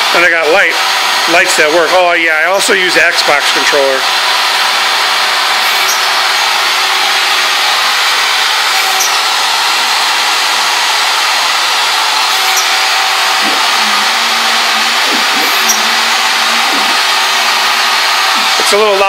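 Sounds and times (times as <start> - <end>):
machine hissing: 2.3 - 19.0
faint hum: 13.4 - 17.7.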